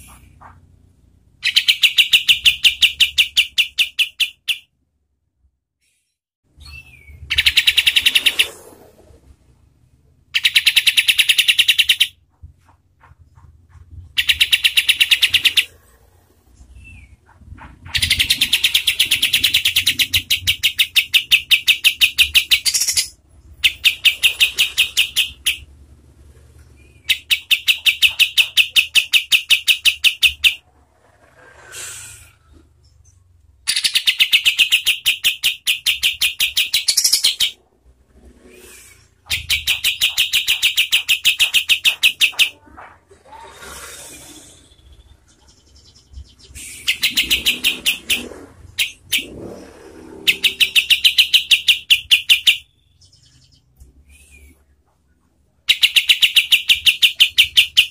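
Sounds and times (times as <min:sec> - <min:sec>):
bird singing stuttering rattle: 0:01.4 - 0:04.7, 0:06.7 - 0:08.8, 0:10.3 - 0:16.0, 0:16.6 - 0:25.8, 0:26.7 - 0:31.4, 0:32.8 - 0:37.6, 0:39.2 - 0:42.8, 0:44.5 - 0:54.0, 0:55.0 - 0:57.9.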